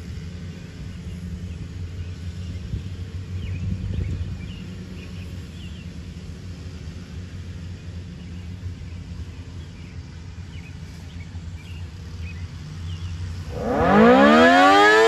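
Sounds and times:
vehicle traffic rumble: 0:00.0 - 0:15.0
small birds chirping: 0:00.8 - 0:06.2, 0:07.8 - 0:13.6.

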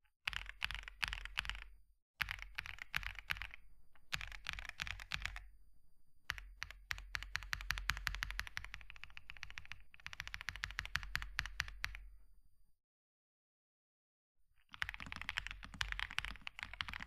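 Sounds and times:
mechanical keyboard typing: 0:00.3 - 0:05.4, 0:06.3 - 0:12.0, 0:14.7 - 0:17.0.

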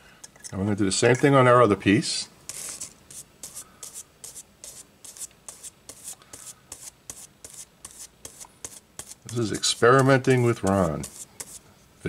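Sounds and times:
brush scrubbing on wood: 0:02.5 - 0:11.6.

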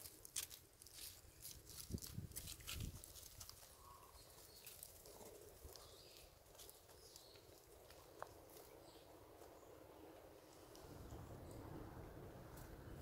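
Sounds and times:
animals moving on dry leaves: 0:00.0 - 0:11.1.

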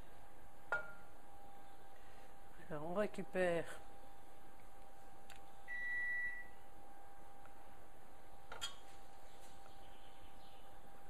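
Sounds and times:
faint steady hum: 0:00.0 - 0:11.0
high beep: 0:05.7 - 0:06.6.

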